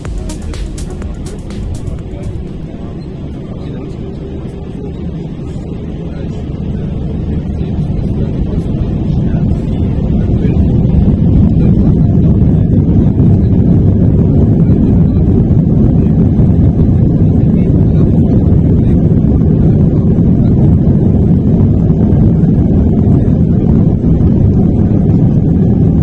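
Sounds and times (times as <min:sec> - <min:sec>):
jet engines low rumble: 0:00.0 - 0:26.0.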